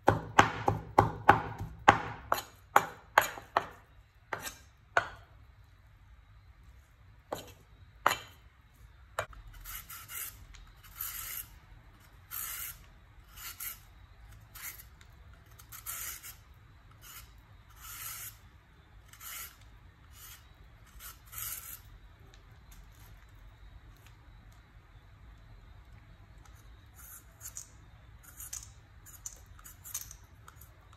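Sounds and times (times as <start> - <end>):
cleaver striking cutting board: 0.0 - 5.2
peeler scraping carrot: 9.2 - 21.9, 26.5 - 30.7.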